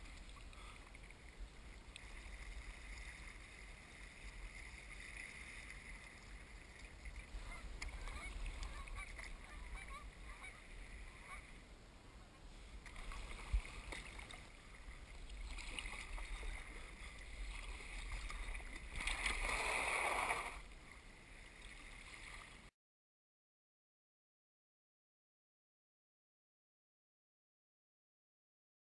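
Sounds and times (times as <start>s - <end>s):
paddle splashing: 0.0s - 11.6s, 12.4s - 22.7s
water lapping: 0.0s - 11.7s, 12.3s - 22.7s
hull scraping on beach: 12.3s - 20.7s.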